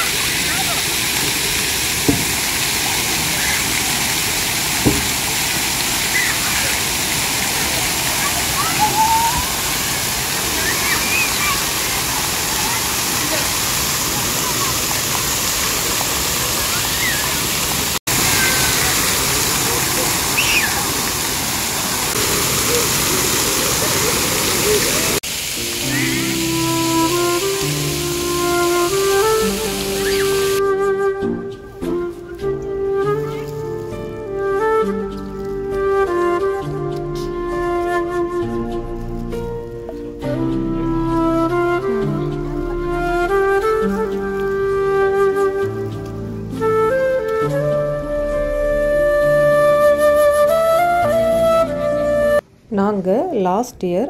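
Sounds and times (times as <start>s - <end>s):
fountain jets splattering: 0.0s - 52.4s
low thump: 2.0s - 2.4s, 4.8s - 5.2s
soft background music: 25.6s - 52.4s.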